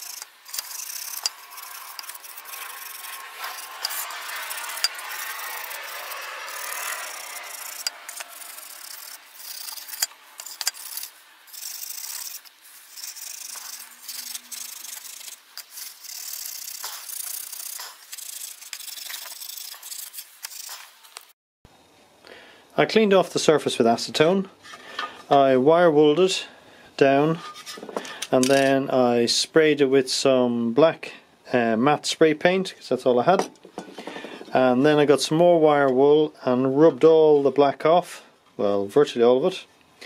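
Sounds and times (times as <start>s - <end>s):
steel wool scrubbing metal sheet: 0.0s - 21.0s.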